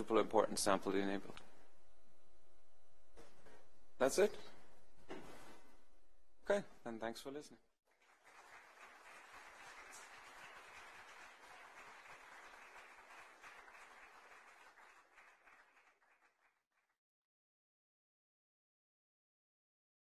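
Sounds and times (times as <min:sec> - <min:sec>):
faint audience applauding: 0:07.9 - 0:16.9.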